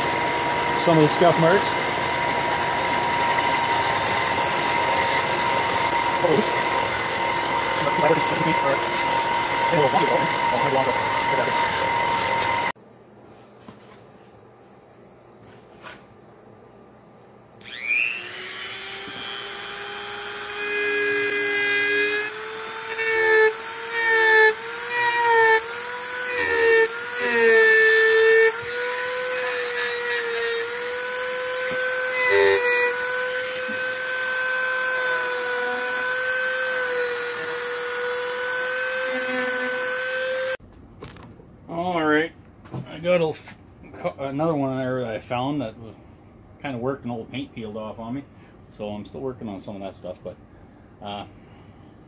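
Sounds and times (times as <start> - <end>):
belt sander running: 0.0 - 12.8, 17.6 - 40.6
rotary tool carving wood: 0.0 - 12.8, 17.6 - 40.6
rotary tool whining: 0.0 - 12.8, 17.6 - 40.6.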